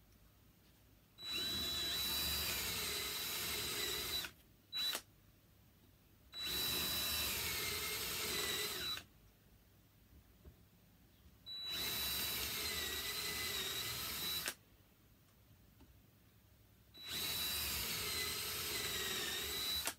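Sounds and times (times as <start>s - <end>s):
cordless drill boring into wood: 1.2s - 5.0s, 6.4s - 9.1s, 11.6s - 14.6s, 17.0s - 19.9s.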